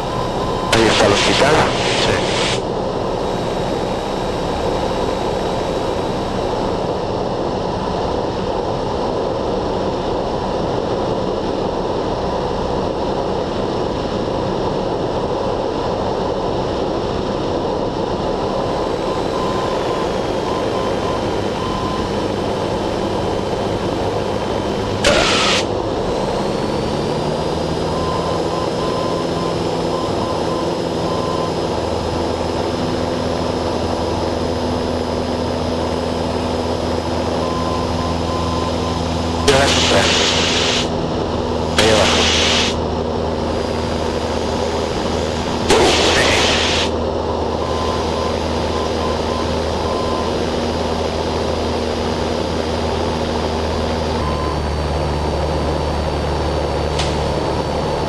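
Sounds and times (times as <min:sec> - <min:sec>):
aircraft engine droning: 0:00.0 - 0:58.0
short sharp noise burst: 0:00.7 - 0:02.6, 0:25.0 - 0:25.7, 0:39.4 - 0:40.9, 0:41.7 - 0:42.8, 0:45.6 - 0:46.9.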